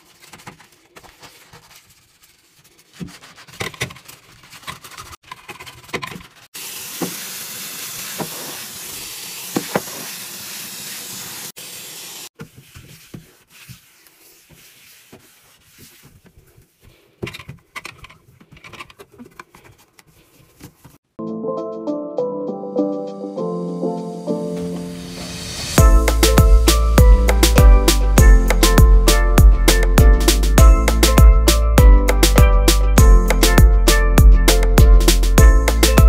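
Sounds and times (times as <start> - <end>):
hand scrubbing a sink: 0.0 - 5.2, 5.8 - 11.5, 12.4 - 21.0.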